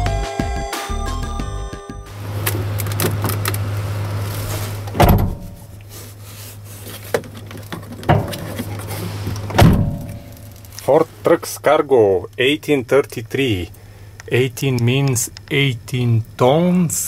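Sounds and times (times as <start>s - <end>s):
outside noise: 2.1s - 17.0s
steady low hum: 2.1s - 17.0s
truck door shutting with thud: 2.2s - 5.7s, 7.1s - 10.3s.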